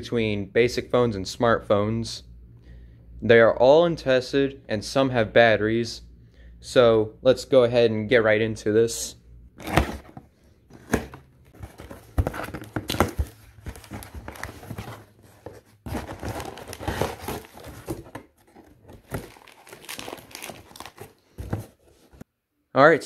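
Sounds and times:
cardboard flaps tearing: 9.6 - 21.8
paper and plastic rustling: 9.6 - 22.2.

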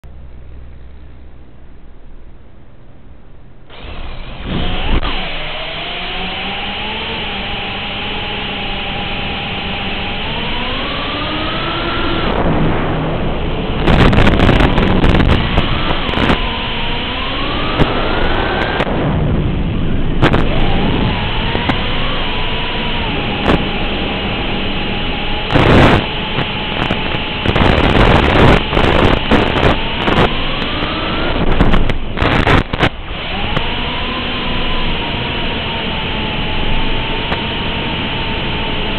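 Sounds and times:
drone motors and propellers whining: 3.7 - 38.9
loud rushing passes: 12.3 - 15.5
crackling static: 13.4 - 16.5, 19.6 - 33.7.

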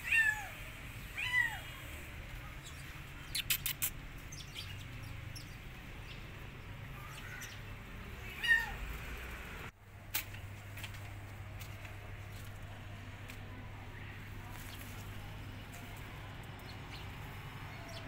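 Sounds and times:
quick clicks: 3.4 - 4.0
kitten meowing: 8.2 - 8.8.

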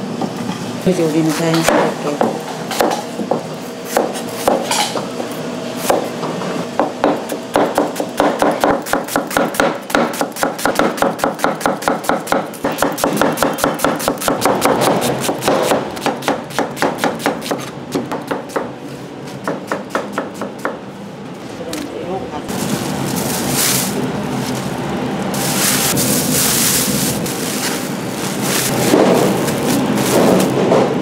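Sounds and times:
knife chopping on cutting board: 1.6 - 4.9, 6.8 - 18.7, 19.4 - 20.8.

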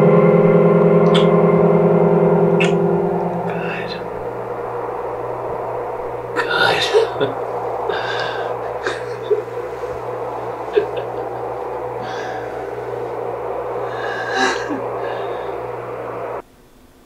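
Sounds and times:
steady low hum: 0.0 - 17.0
hiss: 6.3 - 16.4.

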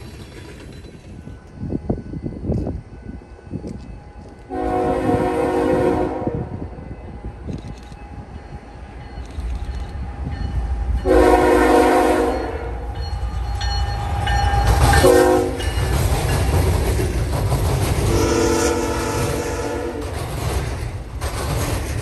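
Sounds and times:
train wheels on rails: 0.0 - 22.0
locomotive air horn blasts: 4.5 - 6.6, 11.0 - 12.9, 15.0 - 15.6, 18.1 - 20.1.

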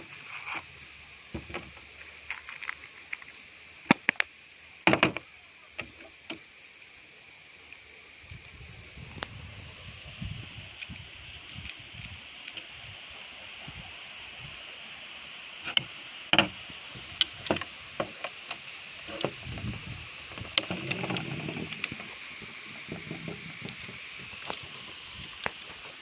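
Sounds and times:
plastic clicks and knocks: 4.9 - 5.2.

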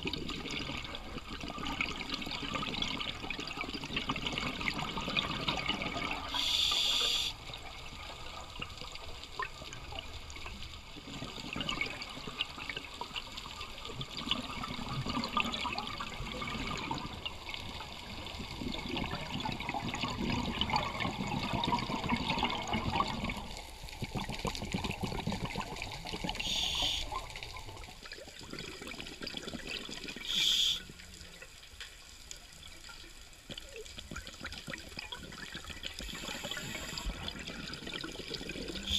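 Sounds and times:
underwater crackling and bubbling: 0.0 - 38.9
short hissing bursts: 6.3 - 7.4, 26.4 - 27.2, 30.3 - 30.9, 36.0 - 37.1.

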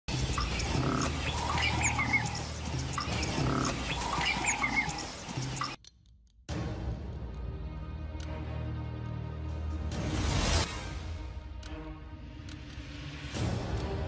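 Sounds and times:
high bird chirps: 0.1 - 5.8.

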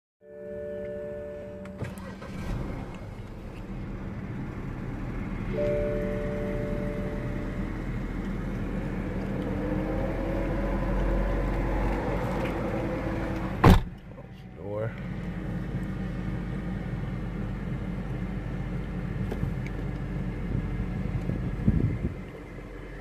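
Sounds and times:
steady tone: 0.2 - 1.9, 5.5 - 8.2
car engine and road hum: 0.2 - 23.0
faint rising whine: 4.4 - 13.2.

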